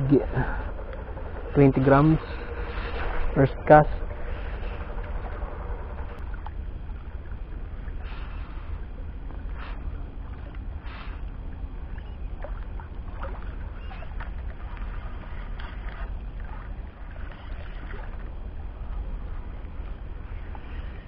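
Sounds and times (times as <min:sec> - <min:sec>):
water lapping at shoreline: 0:00.0 - 0:21.0.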